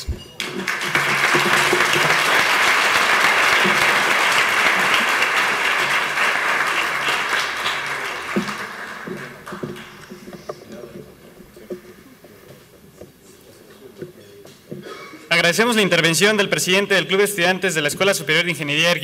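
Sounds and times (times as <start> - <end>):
audience applauding: 0.4 - 10.6.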